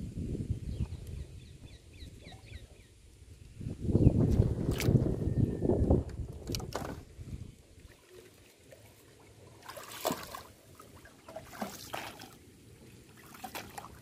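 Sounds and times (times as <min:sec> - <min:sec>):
paddle splashing in water: 0:07.8 - 0:12.4, 0:13.1 - 0:14.0.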